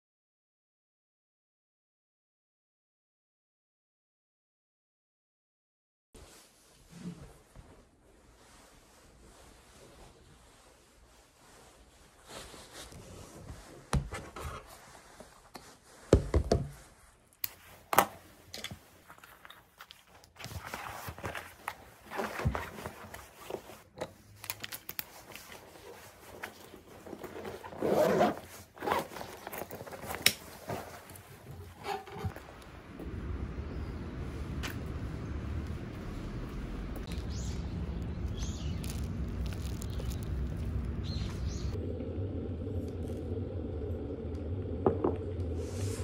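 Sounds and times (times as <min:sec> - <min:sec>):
rustling and scraping: 0:06.2 - 0:32.5, 0:38.3 - 0:41.8.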